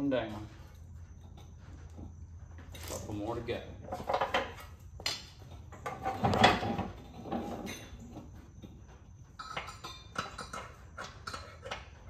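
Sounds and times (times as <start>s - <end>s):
metal tools clanking and knocking: 3.7s - 12.0s.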